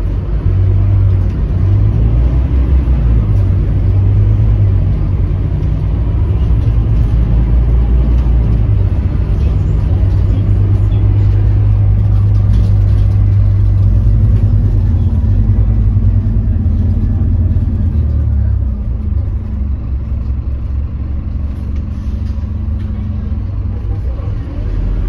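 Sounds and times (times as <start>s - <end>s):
bus diesel engine drone: 0.0s - 25.0s.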